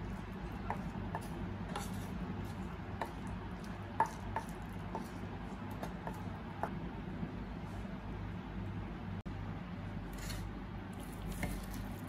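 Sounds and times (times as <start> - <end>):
spatula scraping and tapping pan: 0.0 - 6.7.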